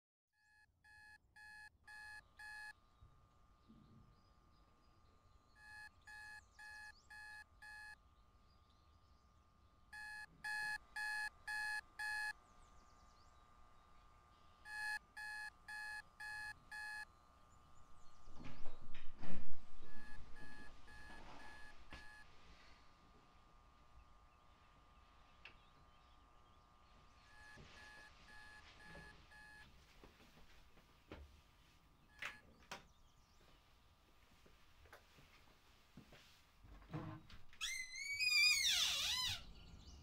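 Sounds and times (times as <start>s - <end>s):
alarm clock beeping: 0.4s - 2.7s, 5.6s - 8.0s, 10.0s - 12.3s, 14.7s - 17.0s, 19.9s - 22.2s, 27.3s - 29.6s
knocks and rustling: 18.3s - 22.1s.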